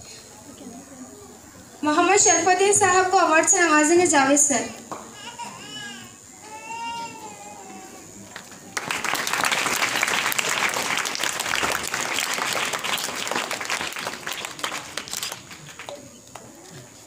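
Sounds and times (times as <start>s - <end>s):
audience applauding: 8.2s - 17.0s.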